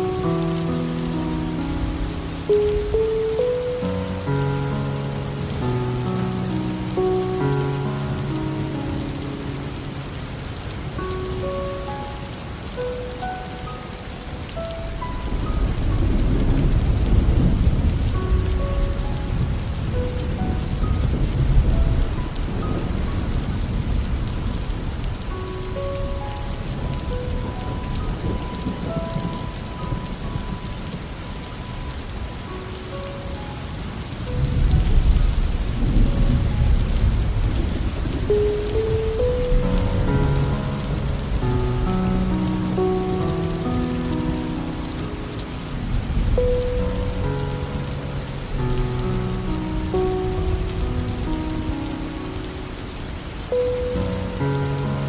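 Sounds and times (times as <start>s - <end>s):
steady rain falling: 0.0s - 55.0s
low rumbles of thunder: 14.9s - 32.3s, 34.0s - 44.7s.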